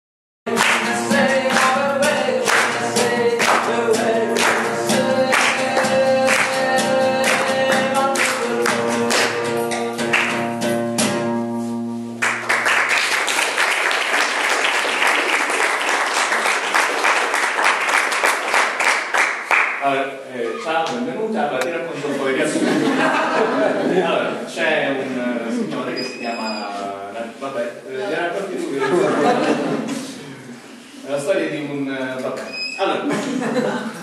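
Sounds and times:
strummed guitar chords: 0:00.5 - 0:12.2
audience applause: 0:12.2 - 0:19.8.

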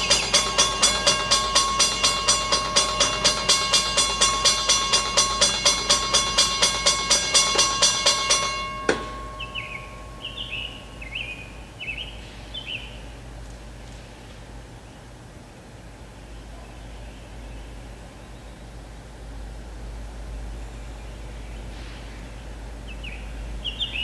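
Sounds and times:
railroad crossing bell ringing: 0:00.0 - 0:12.2
bird chirping: 0:09.1 - 0:13.1, 0:22.9 - 0:24.0.

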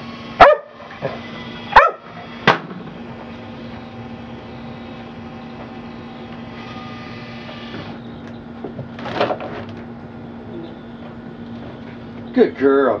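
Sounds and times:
machine humming: 0:00.0 - 0:12.6
ball launcher cracks: 0:02.4 - 0:02.9.

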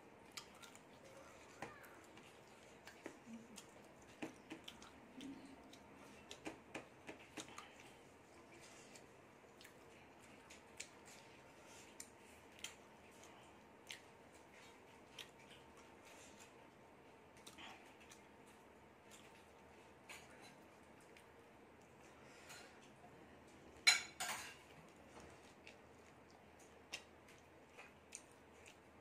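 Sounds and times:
wet chewing mouth clicks: 0:02.2 - 0:08.0.

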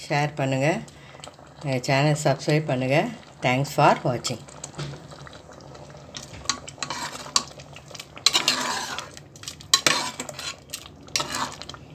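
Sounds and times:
wet stirring swishes: 0:06.2 - 0:11.9.

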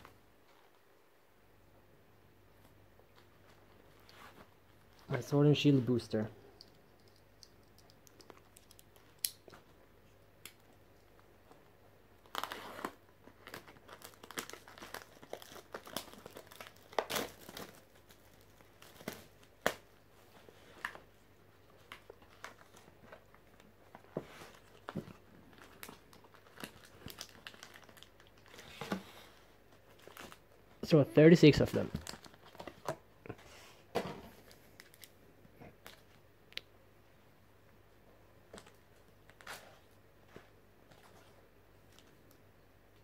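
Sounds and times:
plastic wrapping crinkling: 0:12.2 - 0:21.1, 0:21.7 - 0:33.0, 0:34.3 - 0:36.2.

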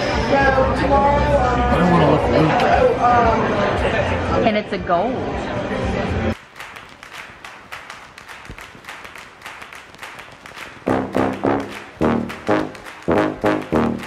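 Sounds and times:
loud brass chords: 0:10.8 - 0:14.0.

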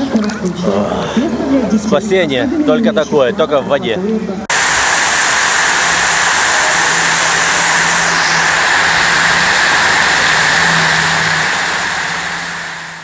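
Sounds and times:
water rushing and splashing: 0:04.5 - 0:13.0.

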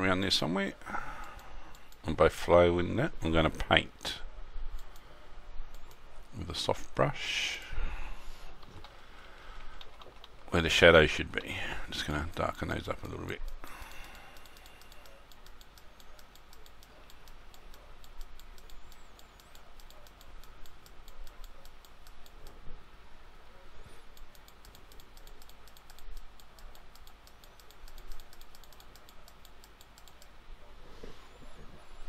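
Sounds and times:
keyboard and mouse clicking: 0:04.7 - 0:05.1, 0:05.7 - 0:06.1, 0:09.6 - 0:10.5, 0:12.2 - 0:22.6, 0:24.1 - 0:30.4.

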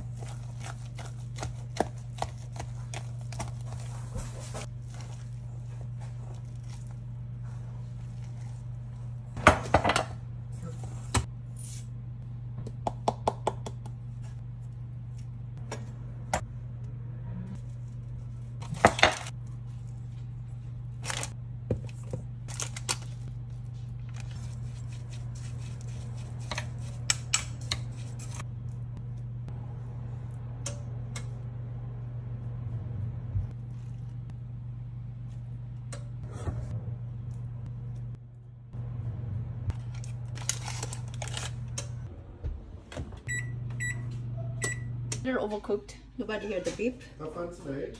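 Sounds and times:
steady low hum: 0:00.0 - 0:46.3.

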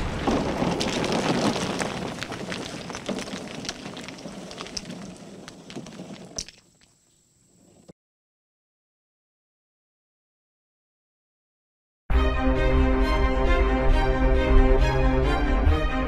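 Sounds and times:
debris falling and clattering: 0:00.0 - 0:07.0.

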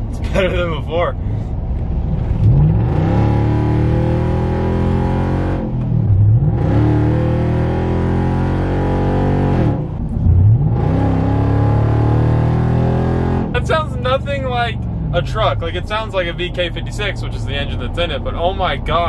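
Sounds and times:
truck engine accelerating: 0:01.5 - 0:19.0.

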